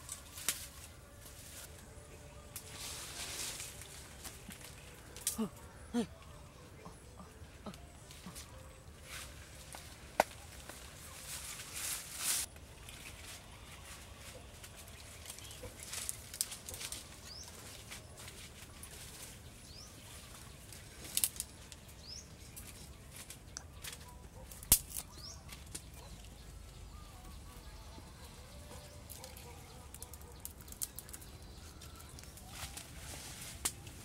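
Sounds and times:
leafy branches rustling: 0:00.0 - 0:34.0
twigs snapping: 0:00.1 - 0:00.9, 0:03.5 - 0:05.8, 0:09.7 - 0:10.8, 0:14.9 - 0:17.1, 0:20.7 - 0:26.4, 0:29.0 - 0:34.0
faint bird chirps: 0:25.0 - 0:32.8.

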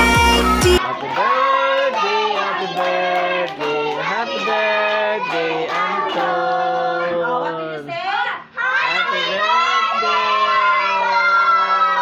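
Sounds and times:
pop music with heavy beat: 0:00.0 - 0:00.8
children singing together: 0:00.0 - 0:07.3.

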